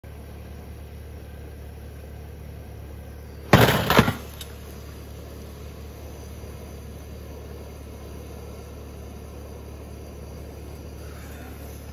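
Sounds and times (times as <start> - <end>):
steady low hum: 0.0 - 11.9
loud clatter: 3.5 - 4.5.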